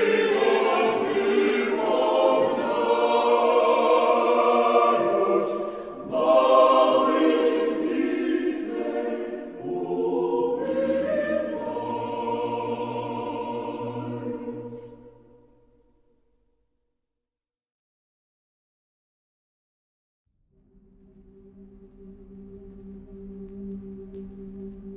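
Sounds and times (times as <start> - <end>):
choir singing held chords: 0.0 - 16.0
low sustained bass note: 20.5 - 24.9.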